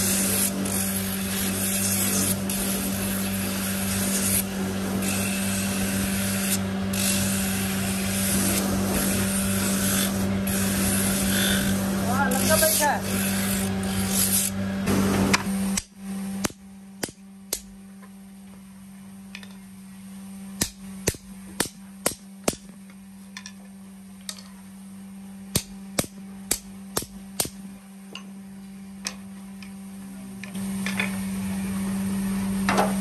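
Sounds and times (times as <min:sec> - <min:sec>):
sanding drum grinding wood: 0:00.0 - 0:15.8
steady low hum: 0:00.0 - 0:33.0
hammer tapping metal punch: 0:15.7 - 0:17.7, 0:25.5 - 0:28.3.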